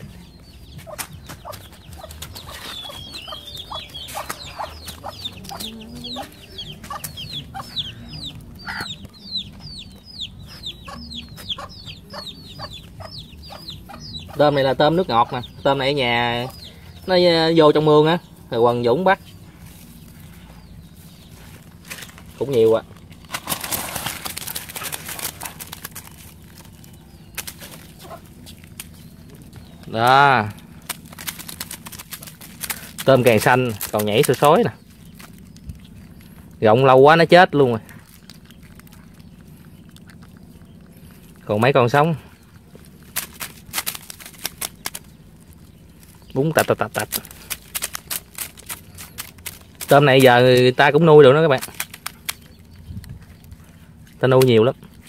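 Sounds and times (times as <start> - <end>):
hen clucking: 0.0 - 31.2
chicks peeping: 0.0 - 55.0
prawns clicking tails on basket: 0.7 - 7.8, 21.7 - 55.0
rustling clatter in basket: 21.0 - 36.2, 42.6 - 55.0.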